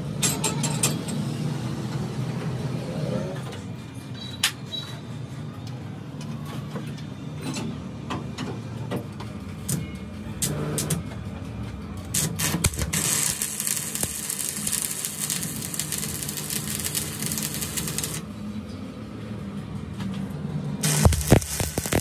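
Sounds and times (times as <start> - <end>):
welding arc crackling hiss: 12.2 - 18.2, 20.8 - 22.0.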